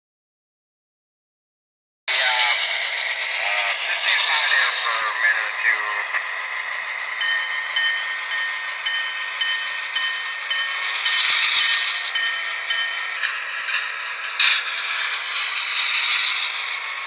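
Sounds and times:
diesel engine sound from small speaker: 2.1s - 17.0s
locomotive bell ringing: 2.1s - 17.0s.

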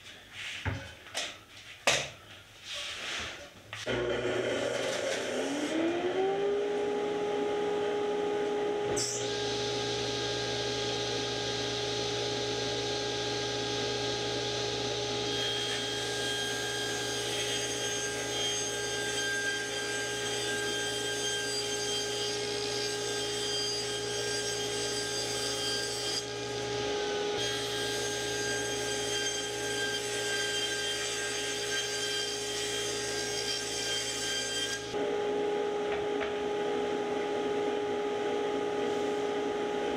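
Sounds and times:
table saw ripping plywood: 3.9s - 5.8s
dust collector motor whine: 3.9s - 18.3s.

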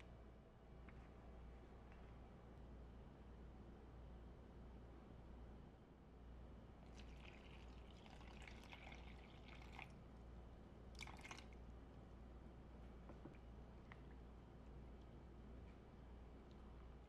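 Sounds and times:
water trickling into a bowl: 6.8s - 10.1s, 10.9s - 11.6s.

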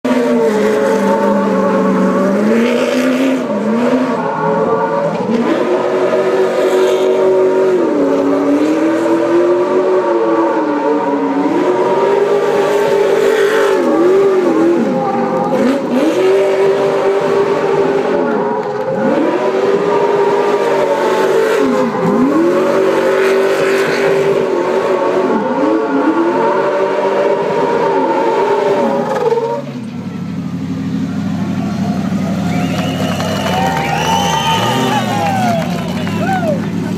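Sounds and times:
truck engine revving: 0.0s - 36.9s.

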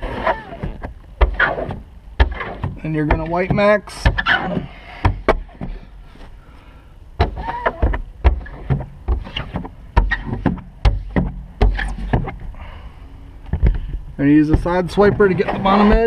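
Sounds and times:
squeegee squeaking on glass: 0.0s - 2.6s, 4.0s - 4.6s, 7.3s - 10.4s, 15.2s - 16.0s.

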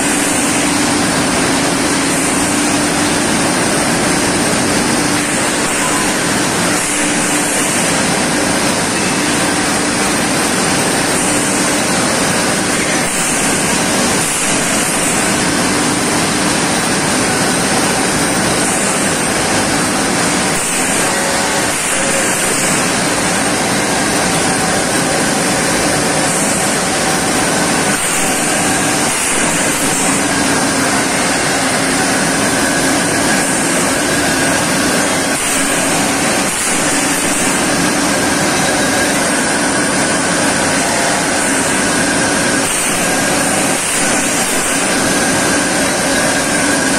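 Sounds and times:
loud industrial machinery din: 0.0s - 46.9s
coolant spraying hiss: 33.5s - 38.6s.

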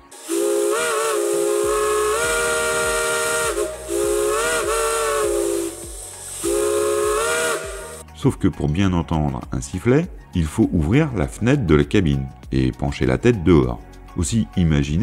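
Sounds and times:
steam hissing: 0.0s - 8.0s
steam whistles sounding a chord: 0.0s - 8.0s.

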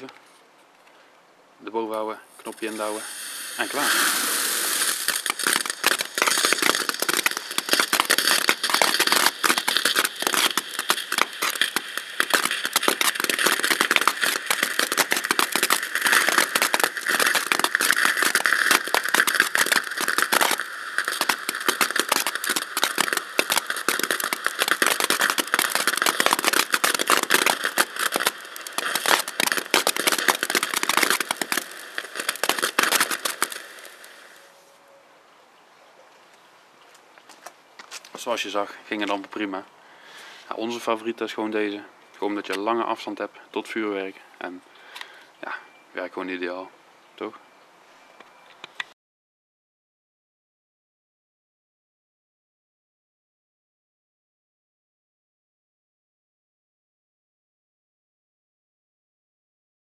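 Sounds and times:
firework fountain hissing and crackling: 2.2s - 34.6s.

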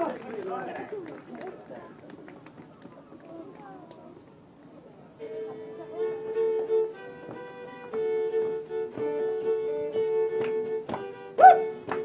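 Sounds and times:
hand claps: 0.0s - 3.7s, 7.2s - 9.2s, 10.2s - 12.0s
fiddle-like folk tune: 5.1s - 12.0s
loud short shout: 11.4s - 11.6s.

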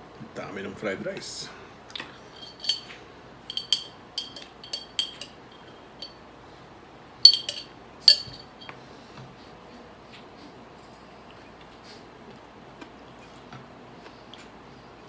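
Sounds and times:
metal spoon clinking glass jar: 2.4s - 2.9s, 3.5s - 6.2s, 7.3s - 8.7s.

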